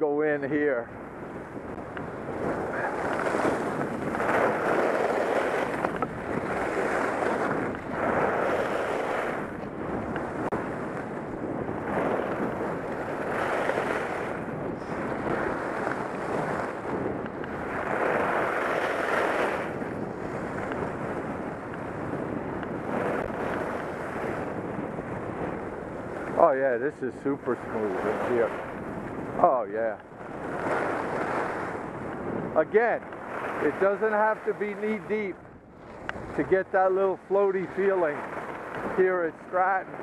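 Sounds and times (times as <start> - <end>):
wind rushing over microphone: 0.0 - 40.0
skis hissing over snow: 2.8 - 5.8.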